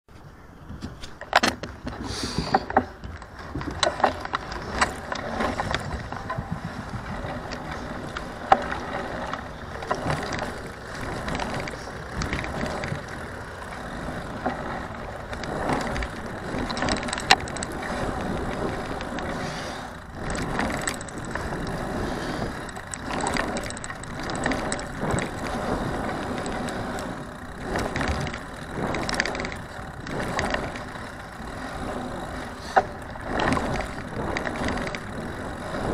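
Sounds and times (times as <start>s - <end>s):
wheels rolling rattle: 0.1s - 35.9s
sharp knocks and clicks: 0.8s - 19.3s.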